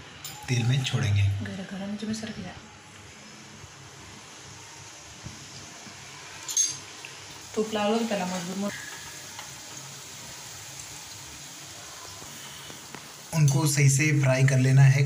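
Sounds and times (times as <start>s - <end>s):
dough frying in hot oil: 3.1s - 15.0s.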